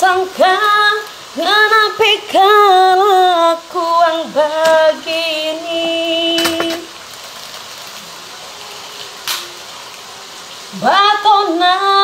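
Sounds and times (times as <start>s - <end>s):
woman singing unaccompanied: 0.0s - 7.0s, 10.6s - 12.0s
faint steady hiss: 0.0s - 12.0s.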